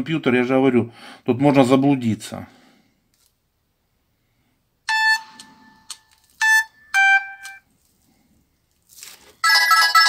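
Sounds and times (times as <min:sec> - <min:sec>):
phone ringtone chimes: 0:04.9 - 0:07.6, 0:09.4 - 0:10.0.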